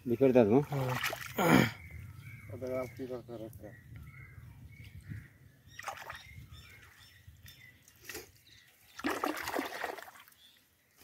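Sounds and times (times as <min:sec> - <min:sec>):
shallow water splashing: 0:00.6 - 0:01.6, 0:05.7 - 0:06.4, 0:08.9 - 0:10.5.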